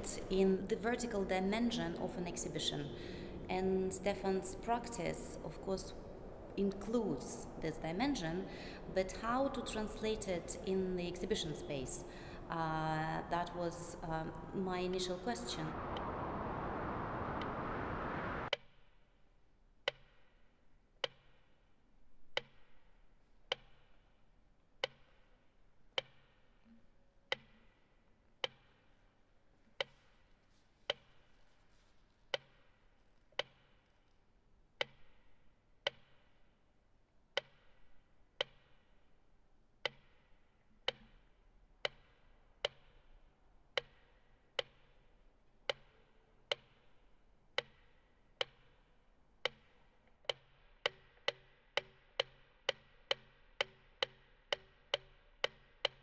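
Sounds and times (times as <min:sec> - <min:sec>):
loud rush of noise: 0:15.4 - 0:18.5.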